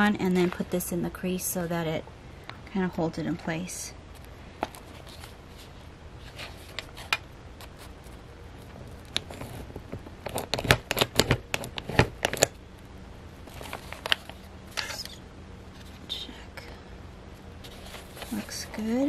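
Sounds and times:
paper and card rustling: 4.2 - 12.5, 13.4 - 15.2, 17.6 - 19.0.

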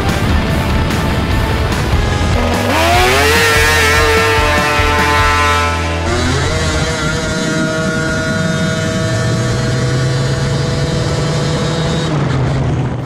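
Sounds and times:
snowmobile engine running hard: 0.0 - 13.0.

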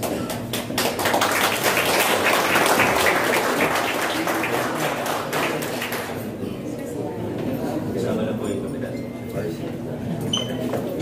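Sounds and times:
people applauding: 0.0 - 6.4.

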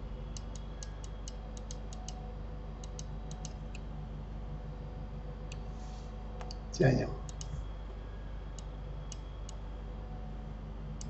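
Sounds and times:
steady low hum: 0.0 - 11.0
computer mouse clicking: 0.4 - 2.2, 2.8 - 3.8, 7.2 - 7.6.

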